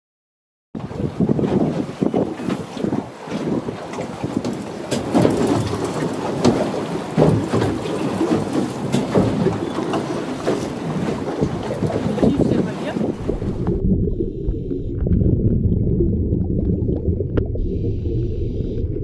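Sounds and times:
wind buffeting microphone: 0.8 - 15.7
water splashing: 3.5 - 19.0.

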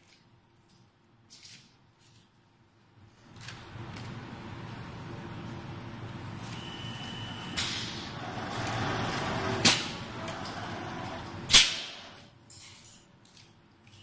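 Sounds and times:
filling machine running: 6.0 - 12.3.

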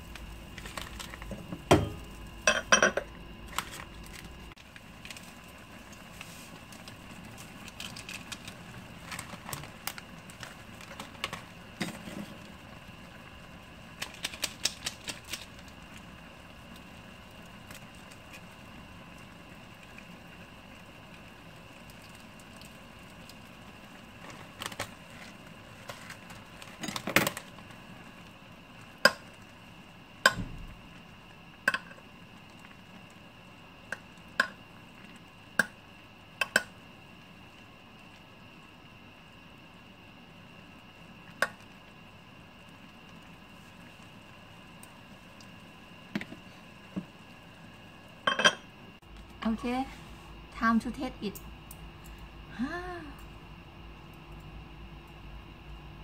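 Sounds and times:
utensil clinking in a bowl: 1.3 - 3.1, 48.3 - 48.6.

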